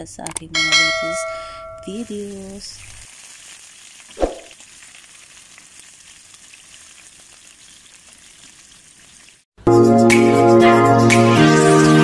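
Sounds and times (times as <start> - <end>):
fish frying in oil: 1.9 - 9.5.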